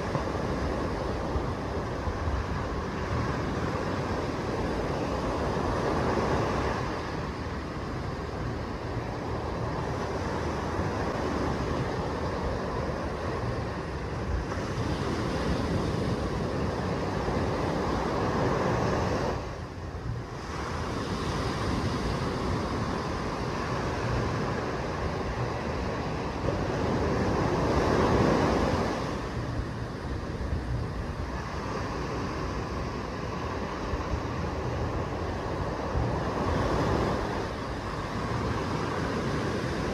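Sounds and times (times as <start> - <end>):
low surf rumble: 0.0 - 39.9
waves washing up a beach: 0.0 - 39.9.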